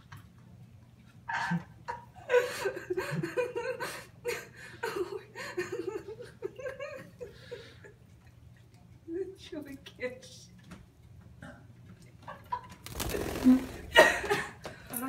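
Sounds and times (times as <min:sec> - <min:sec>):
person giggling: 0:13.4 - 0:14.6.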